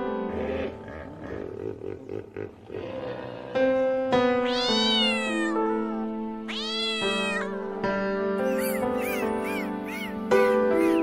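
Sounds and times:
background music with held notes: 0.0 - 11.0
cat meowing: 4.4 - 7.7, 8.4 - 11.0.

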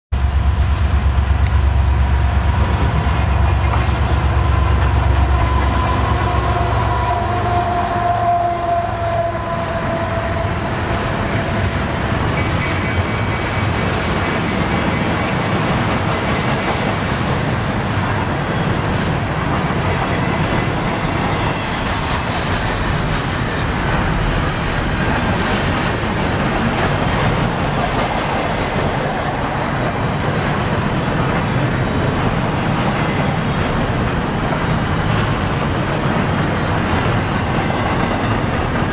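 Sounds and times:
diesel locomotive engine rumble: 0.1 - 38.9
train wheels on rails: 0.1 - 38.9
drawn-out falling tone: 0.2 - 12.3.

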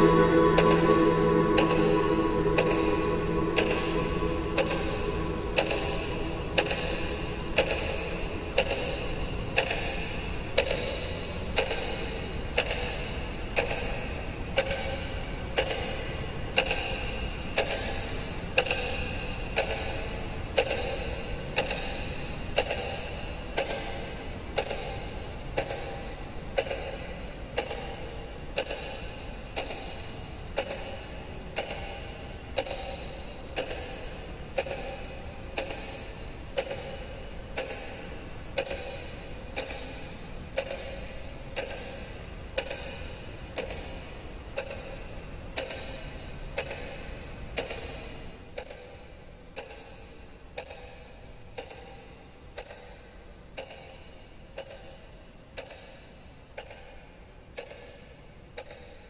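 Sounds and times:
clock ticking: 0.0 - 9.0
low background hum: 0.0 - 9.9.

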